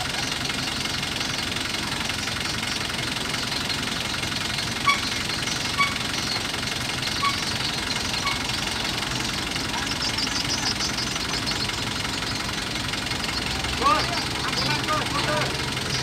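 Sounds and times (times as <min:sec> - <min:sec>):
boat engine idling: 0:00.0 - 0:16.0
short high chirps: 0:04.8 - 0:08.6.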